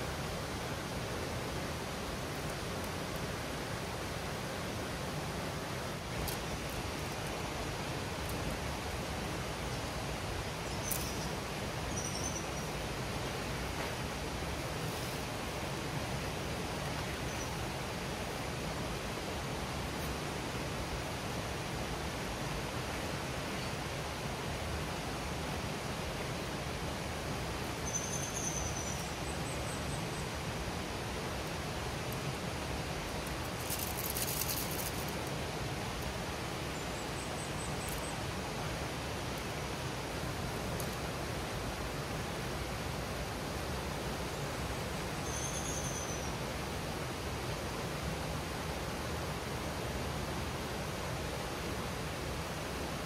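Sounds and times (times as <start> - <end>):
river flowing over rocks: 0.0 - 45.4
stream rushing: 0.0 - 53.0
faint high chirp: 10.6 - 12.7, 27.8 - 30.3, 45.2 - 46.4.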